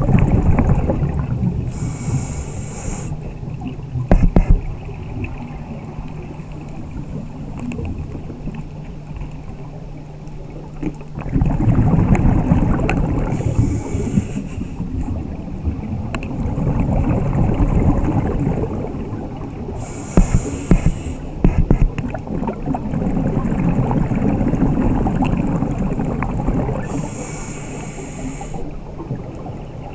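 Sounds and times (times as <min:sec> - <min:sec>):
exhaled bubbles rumbling: 0:00.0 - 0:29.9
low underwater hum: 0:00.0 - 0:29.9
air hissing through regulator: 0:01.7 - 0:03.2, 0:13.3 - 0:14.8, 0:19.8 - 0:21.8, 0:26.8 - 0:28.7.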